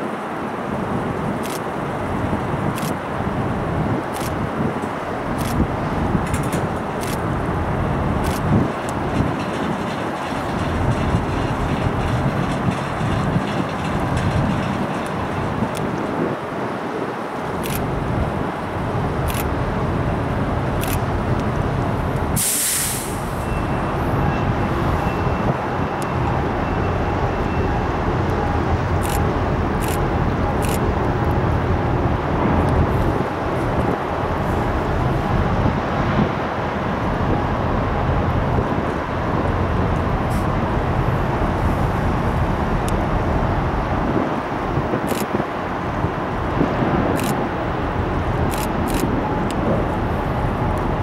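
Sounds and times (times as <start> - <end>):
low outdoor rumble: 5.6 - 15.9
short sharp hiss: 22.4 - 23.4.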